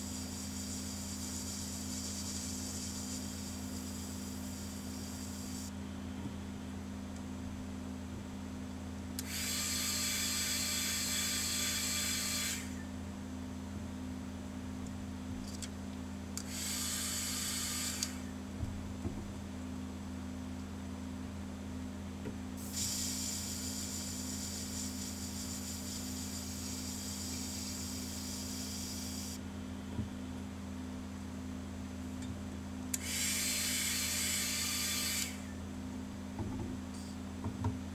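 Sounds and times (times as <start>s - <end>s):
low machine hum: 0.0s - 37.9s
airbrush spraying hiss: 0.1s - 5.7s, 22.6s - 29.4s.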